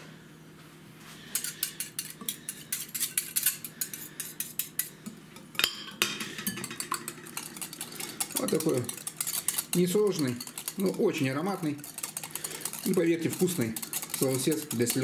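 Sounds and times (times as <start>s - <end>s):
metal spoon clinking against glass bowl: 5.6s - 15.0s.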